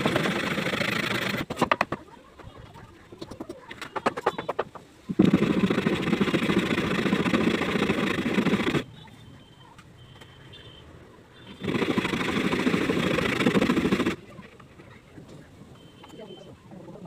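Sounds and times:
wood knocks and taps: 0:01.5 - 0:02.1
hand saw cutting wood: 0:11.6 - 0:14.2.

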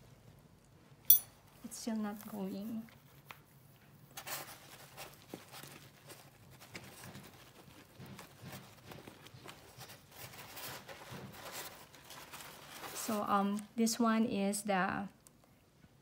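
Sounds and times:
gloved hands rustling: 0:02.0 - 0:13.6.

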